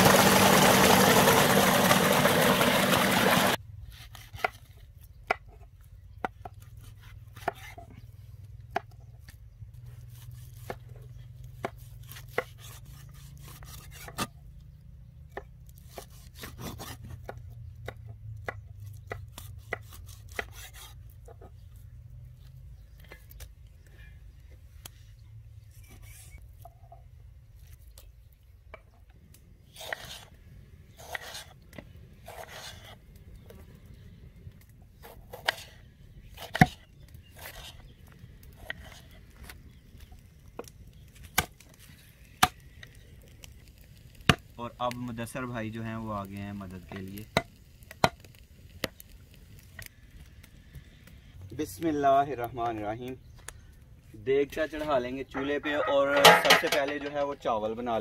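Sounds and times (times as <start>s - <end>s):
cleaver chopping on wooden block: 11.6s - 14.3s, 36.4s - 36.8s
knife slicing on wooden board: 29.8s - 30.3s, 31.0s - 31.5s, 32.3s - 33.0s, 35.0s - 35.8s.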